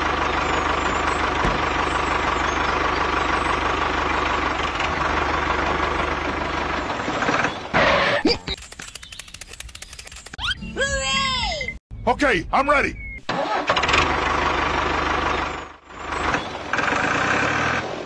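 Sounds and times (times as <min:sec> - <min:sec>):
model tractor motor whirring: 0:08.6 - 0:10.4.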